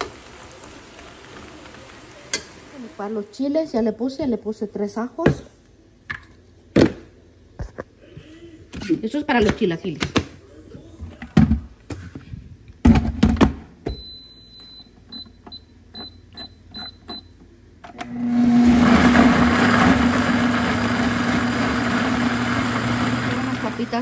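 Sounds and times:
short beeps and clicks: 0:13.9 - 0:17.4
blender motor running: 0:18.0 - 0:24.0.

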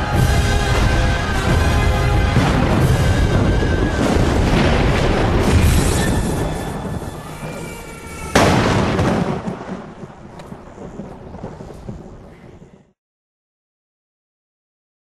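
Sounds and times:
loud crash: 0:00.0 - 0:10.0
deep booming rumble: 0:00.0 - 0:12.3.

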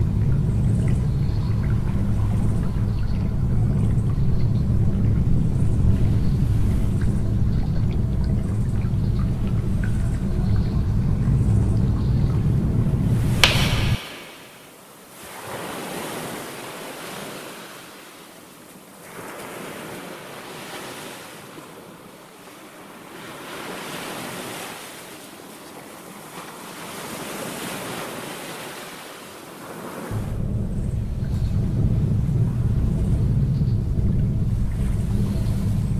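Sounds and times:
deep low rumble: 0:00.0 - 0:14.0, 0:30.1 - 0:35.9
wind: 0:00.0 - 0:35.9
sea surf washing on shore: 0:13.0 - 0:30.4.

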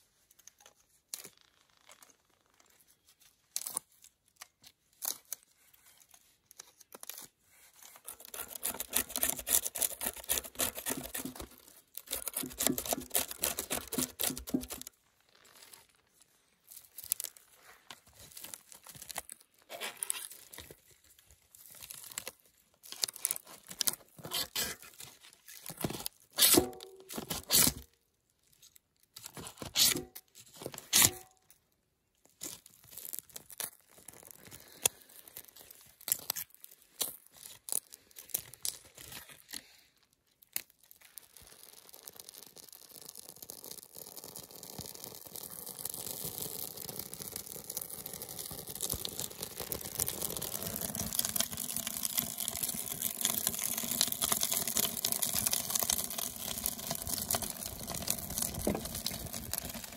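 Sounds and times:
blade scraping bark: 0:08.1 - 0:11.5, 0:12.1 - 0:14.9.

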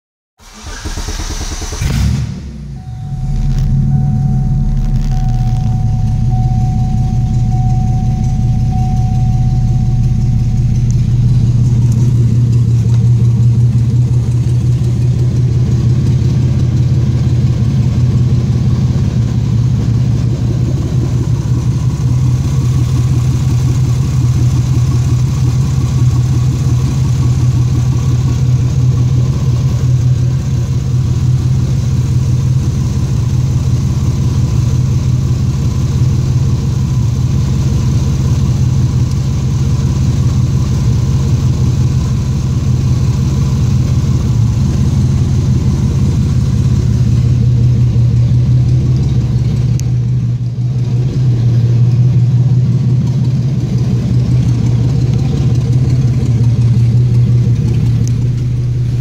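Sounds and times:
car engine idling: 0:00.4 - 0:59.0.

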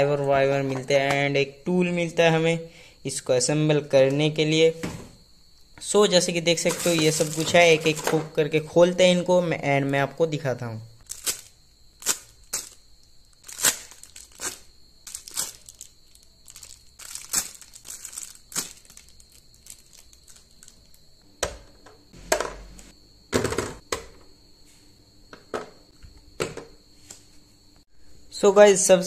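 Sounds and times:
plastic bags crinkling: 0:06.6 - 0:08.2, 0:11.0 - 0:21.0.

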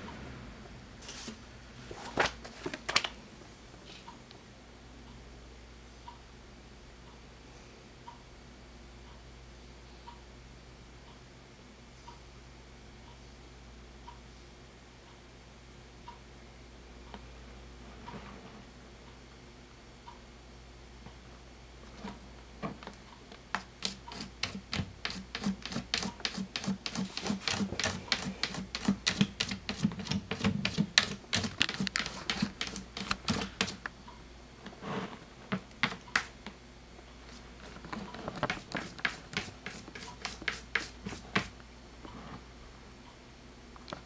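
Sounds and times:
cat scratching in litter box: 0:23.6 - 0:33.8, 0:37.6 - 0:41.5.

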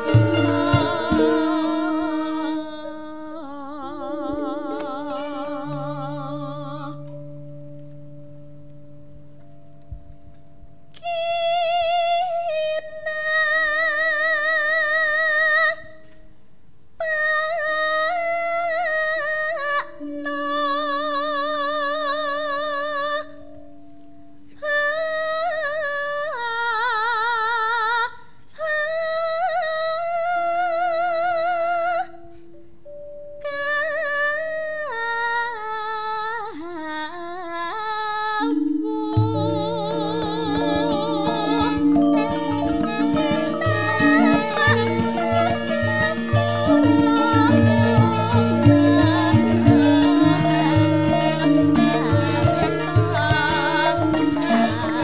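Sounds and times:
gamelan ensemble playing: 0:00.0 - 0:02.4, 0:38.8 - 0:55.0
woman singing with vibrato: 0:00.0 - 0:07.4, 0:11.0 - 0:16.1, 0:17.0 - 0:23.5, 0:24.5 - 0:32.4, 0:33.4 - 0:55.0.

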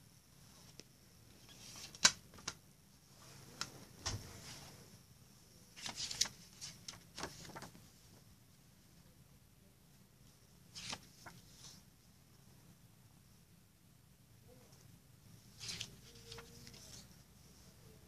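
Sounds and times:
paper booklet rustling: 0:00.7 - 0:02.6, 0:05.7 - 0:07.9, 0:10.7 - 0:11.9, 0:15.5 - 0:17.3.

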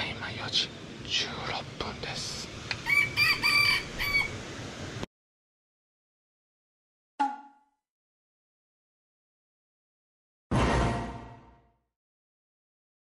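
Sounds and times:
rooster crowing: 0:02.8 - 0:04.4.

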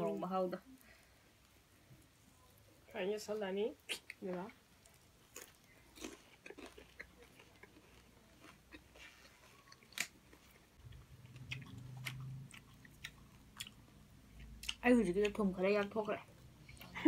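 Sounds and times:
people chewing leaves: 0:03.8 - 0:17.0.

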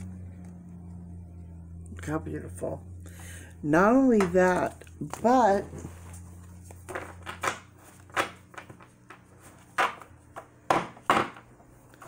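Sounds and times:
cards tapping and clicking: 0:06.7 - 0:12.0.

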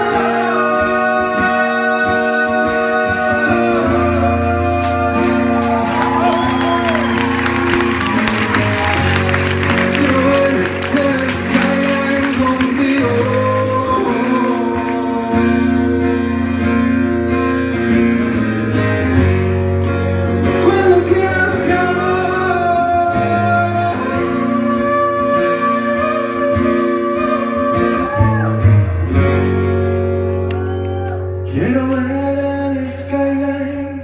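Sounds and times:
men singing: 0:00.0 - 0:05.9, 0:09.7 - 0:15.9, 0:20.6 - 0:28.5
acoustic guitar: 0:00.0 - 0:34.0.

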